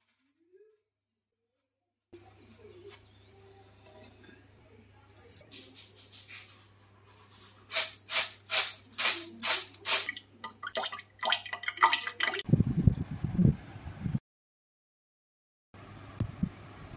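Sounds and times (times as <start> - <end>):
fries rattling in wire strainer: 7.7 - 10.2.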